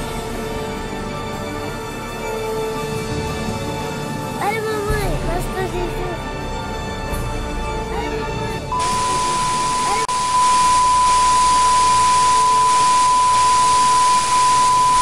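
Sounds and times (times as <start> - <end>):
high-pitched test tone beep: 8.7 - 15.0
static hiss: 8.8 - 15.0.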